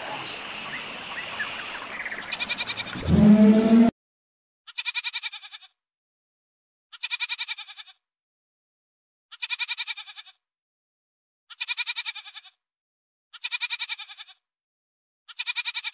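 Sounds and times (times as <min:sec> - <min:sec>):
goat bleating: 0:02.2 - 0:03.9, 0:04.7 - 0:05.8, 0:06.9 - 0:08.0, 0:09.3 - 0:10.4, 0:11.5 - 0:12.6, 0:13.4 - 0:14.4, 0:15.3 - 0:15.9.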